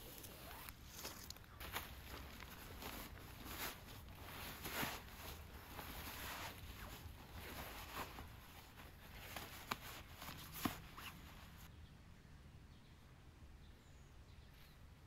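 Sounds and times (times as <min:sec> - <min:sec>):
faint rustling and handling: 0:00.0 - 0:11.7.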